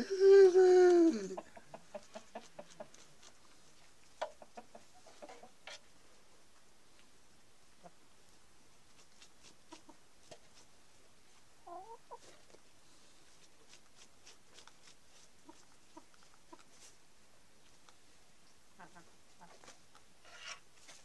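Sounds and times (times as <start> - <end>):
chickens clucking: 1.0 - 5.9, 7.8 - 8.1, 9.4 - 10.6, 11.6 - 12.6, 15.2 - 17.0, 18.7 - 20.0
faint clicks and scratches: 1.9 - 5.9, 19.4 - 21.0.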